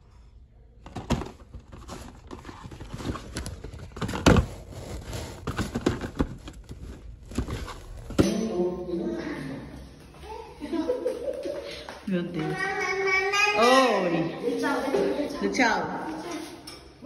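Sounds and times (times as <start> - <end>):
cardboard boxes rustling and knocking: 0.8 - 8.3.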